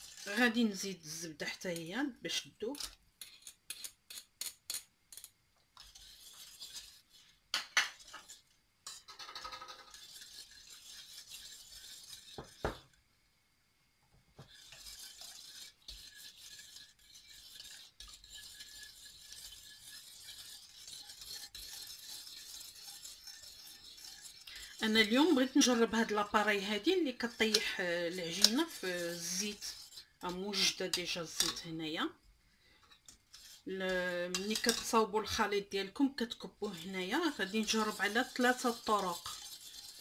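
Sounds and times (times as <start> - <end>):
spoon and knife clinking in metal pot: 30.9 - 31.7, 33.9 - 35.0.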